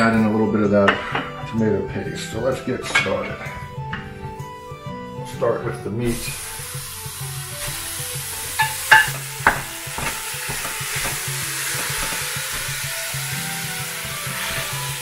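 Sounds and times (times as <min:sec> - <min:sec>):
meat sizzling in a pot: 0:06.0 - 0:15.0
wooden spoon knocking on pot: 0:08.6 - 0:12.8.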